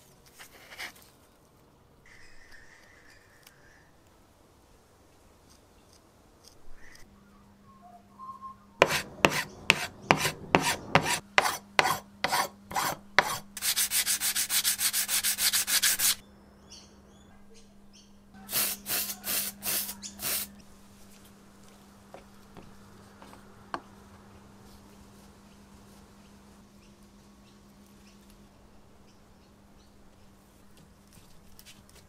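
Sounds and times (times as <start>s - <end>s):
abrasive pad scrubbing: 8.8s - 16.2s.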